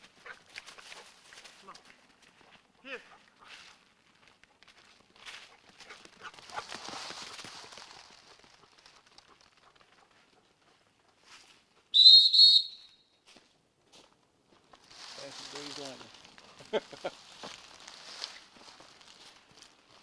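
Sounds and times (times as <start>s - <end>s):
soft rustle: 0.0s - 10.2s, 11.1s - 11.8s, 13.2s - 20.0s
whistle blasts: 11.9s - 13.1s.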